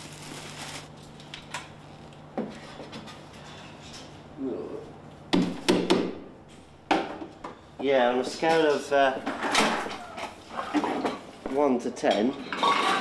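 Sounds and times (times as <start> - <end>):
plastic bin bag rustling: 0.0 - 1.2.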